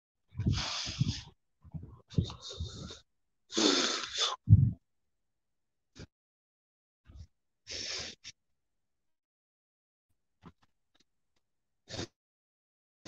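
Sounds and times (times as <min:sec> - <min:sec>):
person breathing heavily: 0:00.4 - 0:04.8.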